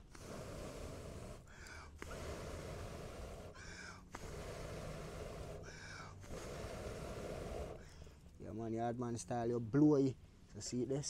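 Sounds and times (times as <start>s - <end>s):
gasping breath in: 0.0s - 8.2s
man blowing on fire: 0.0s - 8.2s.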